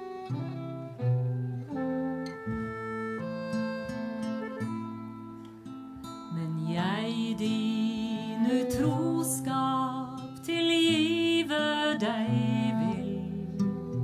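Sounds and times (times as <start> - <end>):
sliding wavering melody line: 0.0 - 5.5
acoustic guitar: 0.0 - 14.0.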